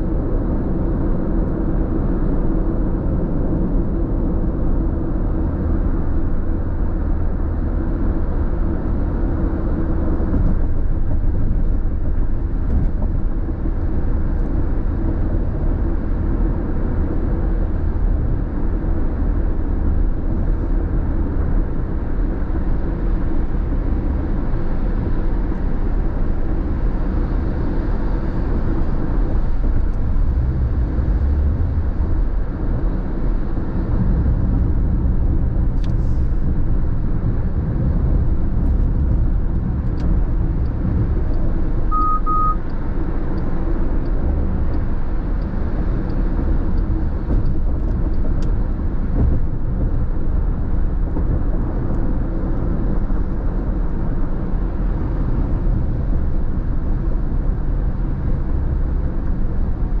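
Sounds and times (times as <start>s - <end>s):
road and tyre noise in car: 0.0s - 60.0s
short beeps: 41.9s - 42.7s.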